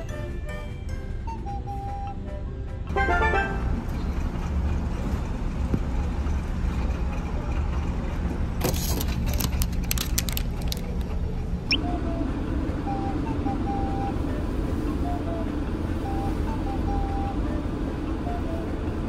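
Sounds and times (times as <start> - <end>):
ferry engines droning: 0.0 - 19.0
clicks and plastic rustling: 8.6 - 11.1.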